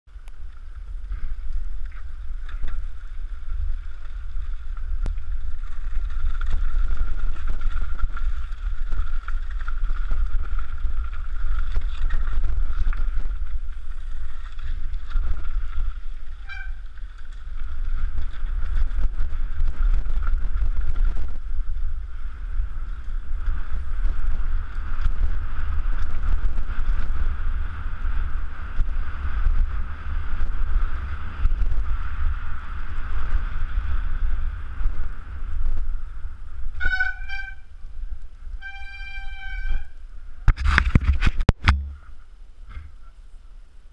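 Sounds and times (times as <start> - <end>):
wind rumbling on microphone: 0.1 - 43.9
bike knocks and rattles: 0.8 - 21.9, 40.5 - 42.1.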